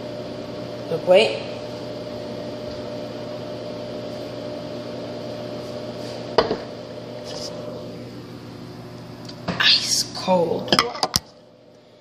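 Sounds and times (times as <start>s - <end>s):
microwave oven humming: 0.0s - 12.0s.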